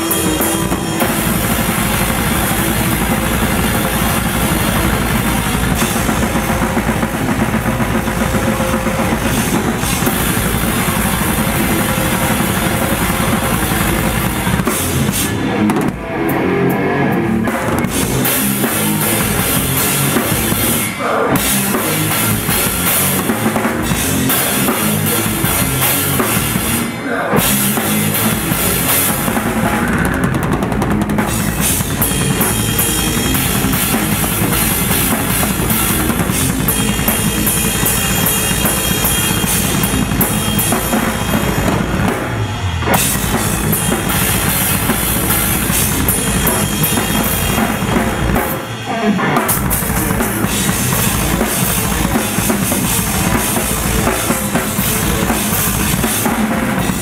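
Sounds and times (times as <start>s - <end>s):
death metal band playing: 0.0s - 57.0s
fast bass drum strokes: 0.0s - 57.0s.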